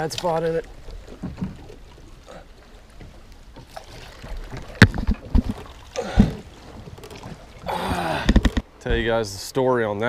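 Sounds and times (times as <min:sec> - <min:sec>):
low wind: 0:00.0 - 0:10.0
water noise: 0:00.0 - 0:10.0.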